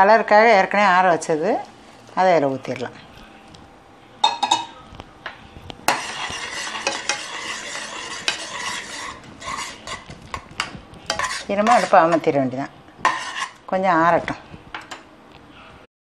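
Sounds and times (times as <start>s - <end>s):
spoon knocking on pan: 4.2s - 4.7s, 5.9s - 12.2s, 13.0s - 13.5s
metal spoon stirring in a pot: 5.7s - 12.4s, 13.0s - 15.0s.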